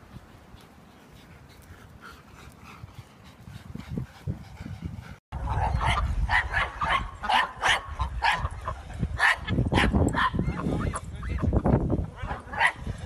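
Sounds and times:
small dog barking and yipping: 0:05.5 - 0:08.5.

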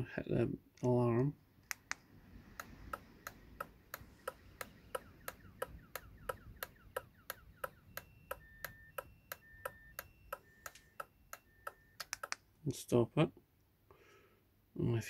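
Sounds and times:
alarm relay clicking: 0:01.2 - 0:12.4
short two-tone beeps: 0:04.6 - 0:12.4.

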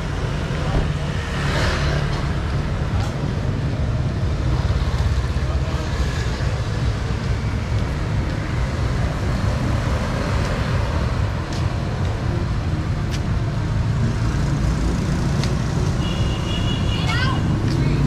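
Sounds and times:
road traffic rumble: 0:00.0 - 0:18.0.

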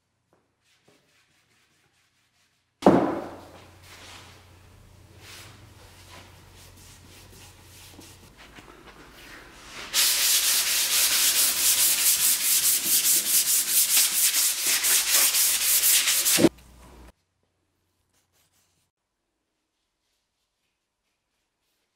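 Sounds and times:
hand sanding wood: 0:05.2 - 0:08.4, 0:09.1 - 0:16.5.

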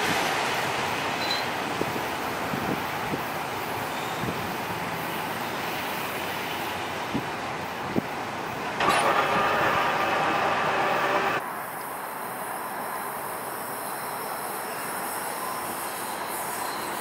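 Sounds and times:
light-rail train rolling on track: 0:00.0 - 0:17.0.

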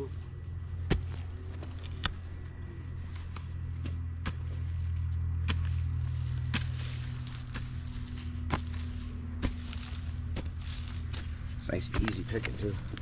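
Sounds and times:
low rumble: 0:00.0 - 0:13.0
mattock striking soil: 0:03.0 - 0:13.0.

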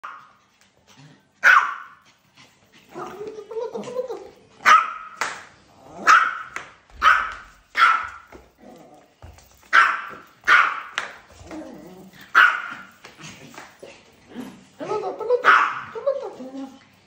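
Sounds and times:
small dog yapping: 0:15.4 - 0:16.0.

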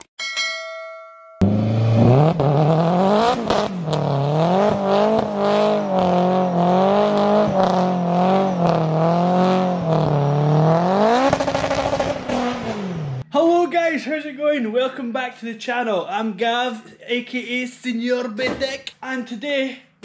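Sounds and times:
car engine revving hard: 0:01.4 - 0:13.2.

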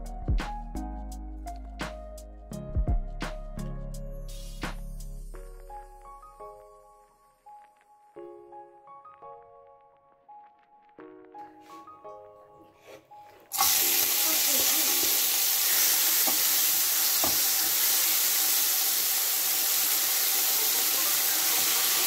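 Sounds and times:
soft music: 0:00.0 - 0:22.0
food sizzling in frying pan: 0:13.5 - 0:22.0.

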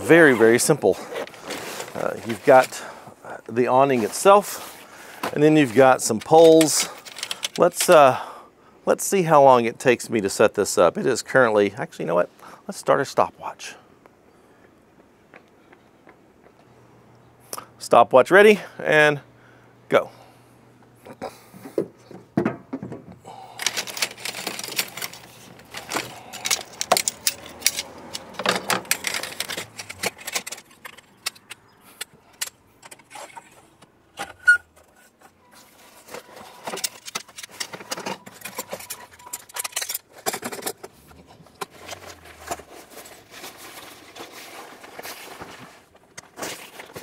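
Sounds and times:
poles clicking and clattering: 0:21.6 - 0:47.0.

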